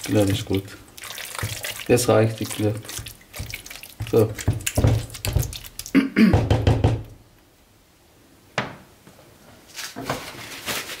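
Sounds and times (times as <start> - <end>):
mixing bowl thumps: 0.0 - 7.2.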